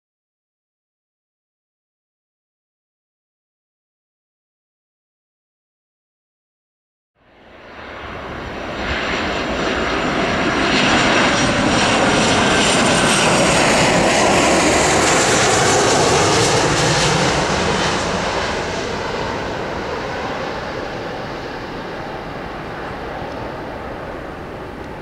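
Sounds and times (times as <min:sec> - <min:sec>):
jet airliner rumble passing by: 0:07.2 - 0:25.0.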